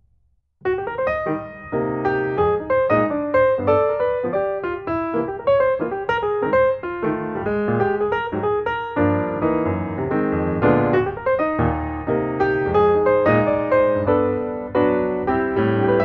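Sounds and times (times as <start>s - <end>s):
piano music: 0.6s - 16.0s.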